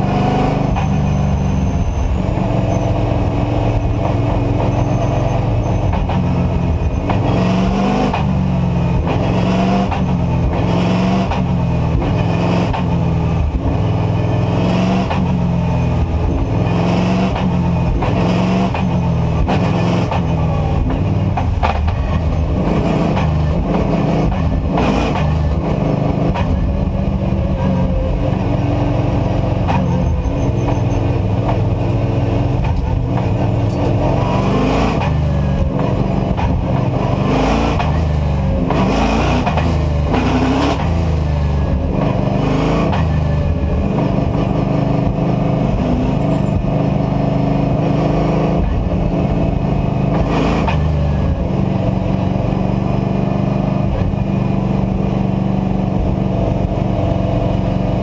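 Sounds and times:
race car engine at speed: 0.0s - 58.0s.

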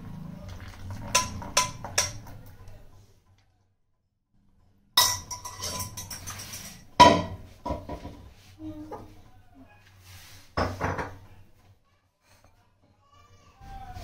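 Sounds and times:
kitchenware knocks and clinks: 0.8s - 2.4s, 5.0s - 8.3s, 10.6s - 11.3s
steel vessel clattering and ringing: 5.0s - 7.3s.

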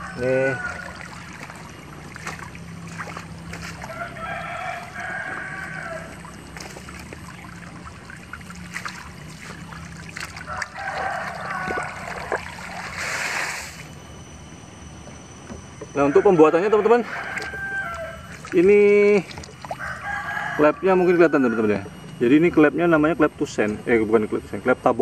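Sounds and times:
rooster crowing: 0.0s - 1.8s, 2.6s - 6.8s, 10.3s - 13.0s, 15.9s - 22.2s
water trickling from a pipe: 0.0s - 13.8s, 17.0s - 20.8s.

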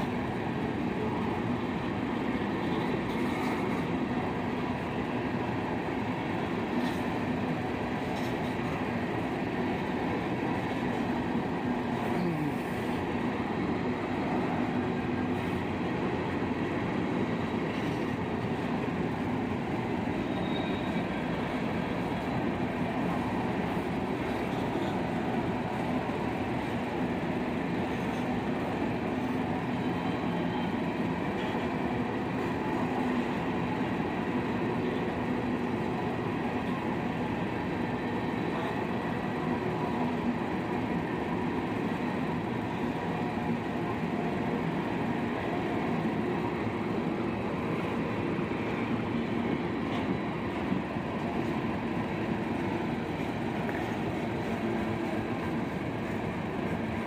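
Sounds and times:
freight train wheels rumbling on rails: 0.0s - 57.0s.

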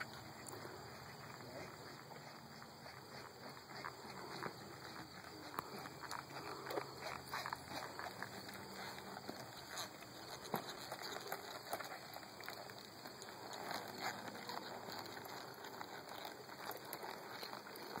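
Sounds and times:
steady outdoor hiss: 0.0s - 18.0s.

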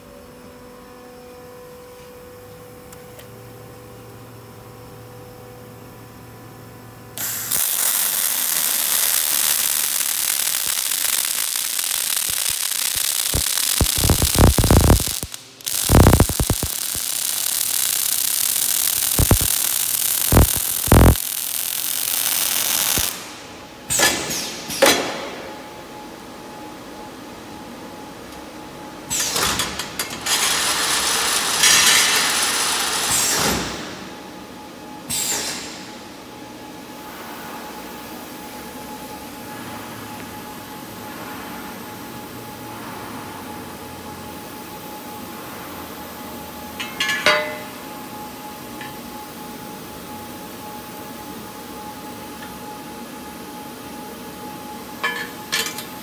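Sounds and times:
welding torches crackling: 7.2s - 23.5s, 30.2s - 33.7s.

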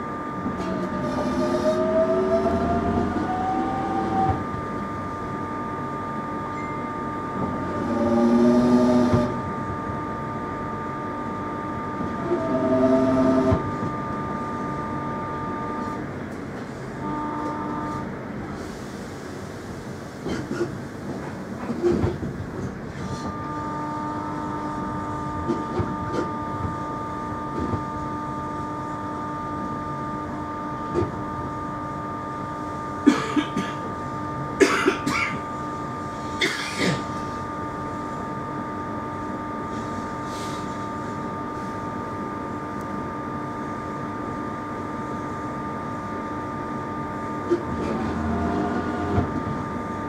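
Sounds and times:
train rumble: 0.0s - 31.6s, 42.4s - 50.0s
train motor whine: 0.0s - 50.0s.

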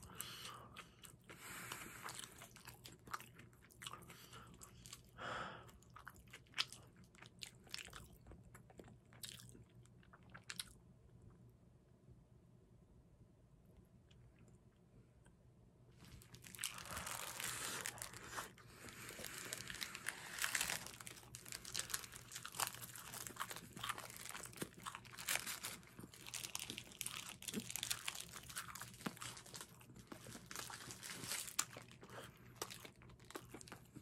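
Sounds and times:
plastic wrapper crinkling: 16.0s - 32.0s.

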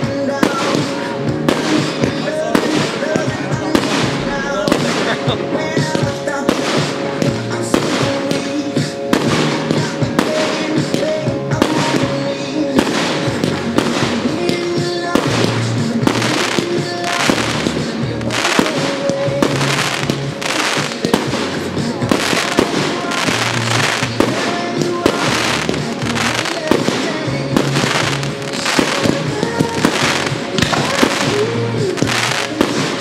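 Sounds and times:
song playing in background: 0.0s - 33.0s
firework shells bursting: 12.8s - 33.0s.

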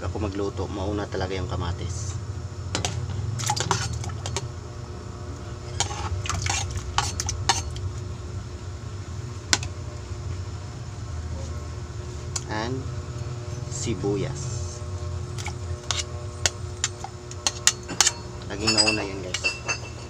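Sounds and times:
steady low hum: 0.0s - 20.0s
metal spoon clinking on plate and pot: 5.8s - 7.8s, 15.8s - 20.0s.

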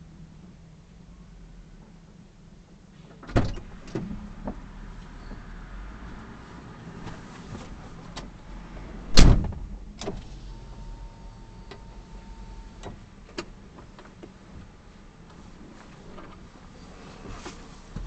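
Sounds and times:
low steady rumble: 0.0s - 18.0s
loud sharp thump: 9.1s - 9.7s.

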